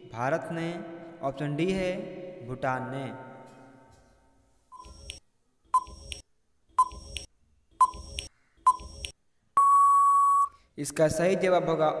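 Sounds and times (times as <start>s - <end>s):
short ticking beeps: 5.8s - 6.2s, 6.8s - 10.6s
long steady beep: 6.8s - 10.6s.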